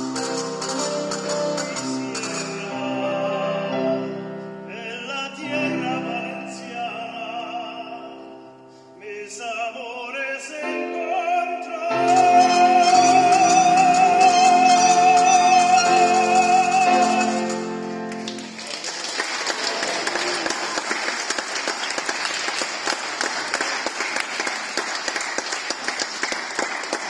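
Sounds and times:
man singing with vibrato: 0.0s - 18.1s
piano: 0.0s - 27.0s
audience applause: 18.1s - 27.0s.

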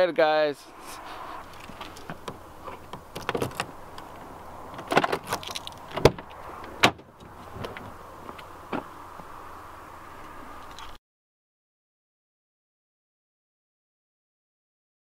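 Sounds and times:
clicks rattles and knocks: 2.0s - 3.7s, 4.7s - 7.0s.

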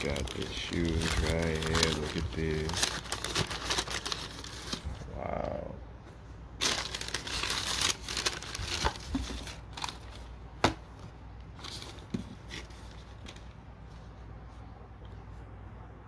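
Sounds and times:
tissue paper rustling: 0.0s - 5.0s, 6.6s - 10.3s
low steady hum: 0.0s - 16.0s.

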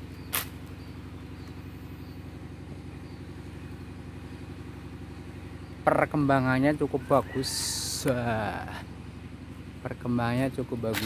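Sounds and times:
engine idling: 0.0s - 11.0s
sharp click: 0.3s - 0.6s.

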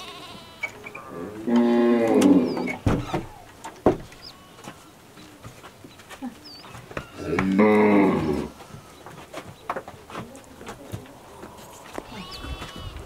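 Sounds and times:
cow mooing: 0.0s - 2.5s.

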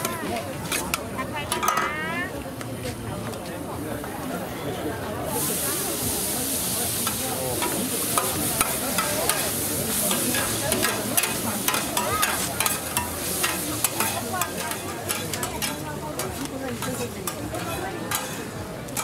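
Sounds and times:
metal spatulas scraping a pan: 0.0s - 2.0s, 5.4s - 19.0s
noodles sizzling in a pan: 5.2s - 19.0s.

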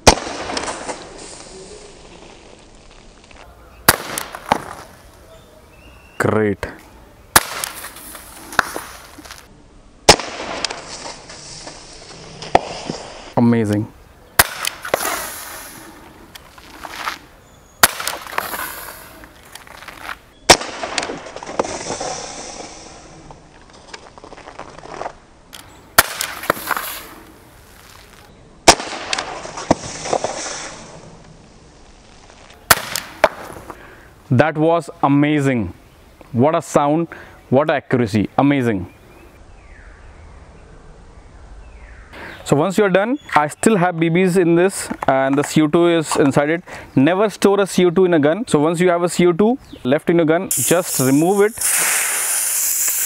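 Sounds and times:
air pistol shots: 0.0s - 1.0s, 3.9s - 4.6s, 7.4s - 7.9s, 10.1s - 10.9s, 14.4s - 15.7s, 17.8s - 18.8s, 20.5s - 21.3s, 26.0s - 26.9s, 28.7s - 30.3s, 32.7s - 33.6s, 50.5s - 53.0s.

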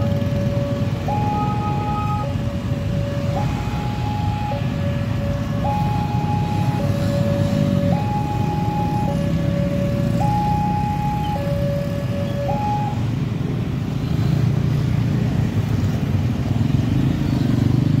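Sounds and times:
motorcycle engines running: 0.0s - 18.0s
level crossing two-tone alarm: 1.1s - 2.4s, 3.2s - 4.7s, 5.6s - 6.9s, 7.9s - 9.2s, 10.2s - 13.0s.

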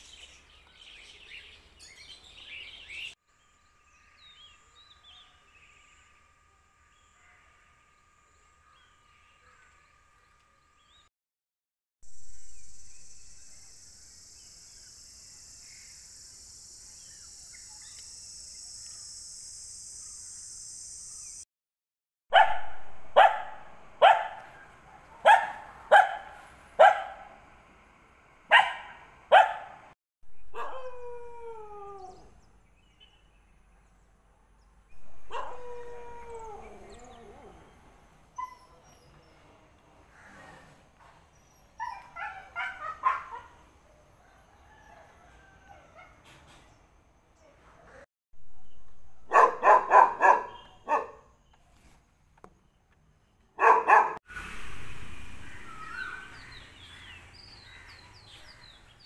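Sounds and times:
dog barking: 22.3s - 27.4s, 28.5s - 29.9s, 30.5s - 31.0s, 35.2s - 36.5s, 41.8s - 43.6s, 49.2s - 51.3s, 53.6s - 54.2s
dog howling: 30.6s - 32.3s, 35.3s - 37.7s
steady high hiss: 54.3s - 56.4s.

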